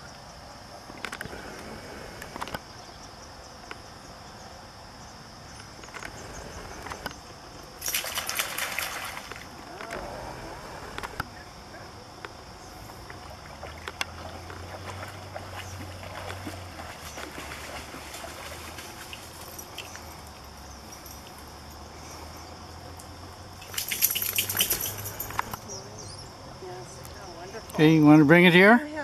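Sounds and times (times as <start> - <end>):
dog shaking water off fur: 7.8 - 9.4, 23.6 - 25.5
dog splashing through water: 7.8 - 9.9, 13.0 - 20.3, 23.5 - 25.6.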